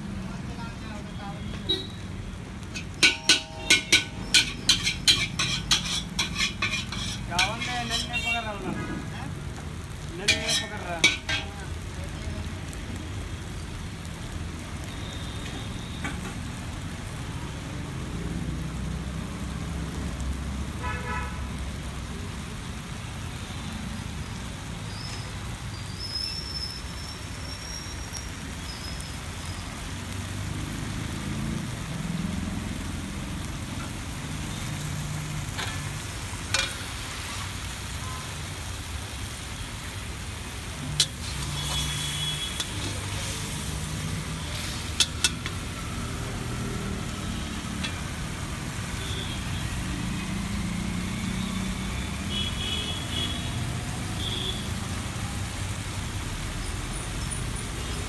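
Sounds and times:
street traffic rumble: 0.0s - 58.0s
spatula clanking on wok: 2.6s - 8.4s, 10.2s - 11.7s, 35.5s - 37.0s, 40.9s - 42.0s, 42.6s - 44.0s, 44.6s - 45.7s, 47.7s - 48.2s.

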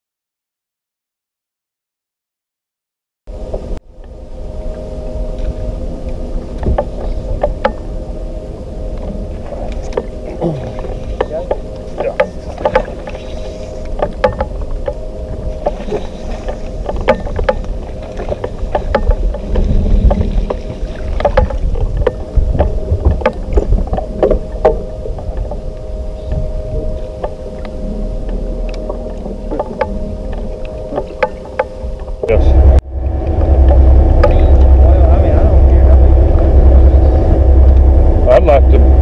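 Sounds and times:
electric trolling motor humming: 3.3s - 39.0s
rumble of water: 3.3s - 39.0s
wind: 3.3s - 39.0s
clicks and knocks on boat: 5.4s - 7.9s, 8.9s - 32.4s, 33.6s - 34.8s.

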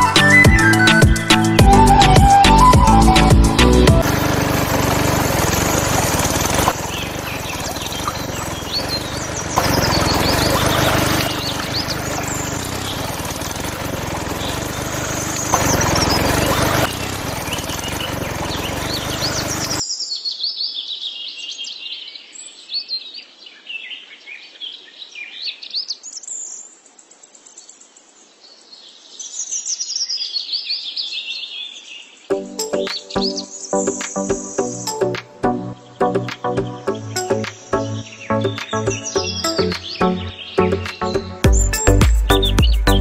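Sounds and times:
birds chirping: 0.0s - 43.0s
water pouring into a tank: 4.0s - 19.8s.

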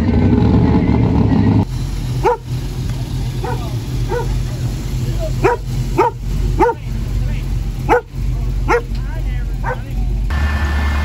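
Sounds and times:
steady low hum: 1.6s - 10.3s
dog barking: 2.2s - 2.5s, 3.4s - 4.4s, 5.4s - 6.9s, 7.9s - 9.0s, 9.6s - 9.9s.

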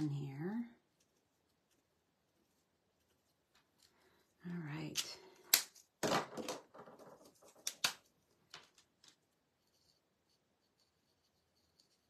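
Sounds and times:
pens clattering: 4.8s - 9.3s
marker scratching on card: 9.6s - 12.0s.

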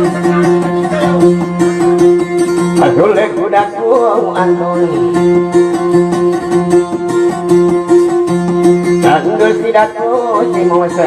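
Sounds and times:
plucked string instrument: 0.0s - 11.0s.

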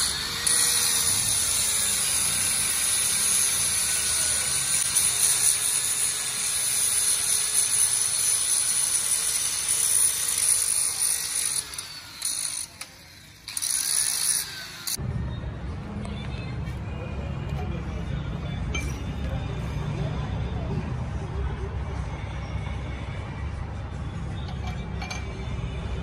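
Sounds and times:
angle grinder grinding steel: 0.0s - 15.0s.

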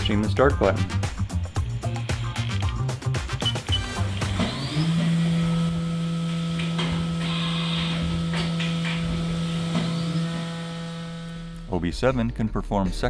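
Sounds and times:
cnc spindle whine and hum: 3.8s - 11.8s.

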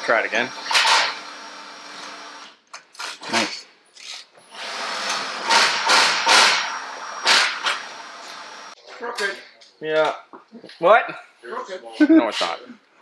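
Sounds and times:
power tool running in bursts: 0.0s - 2.5s, 4.5s - 8.8s.

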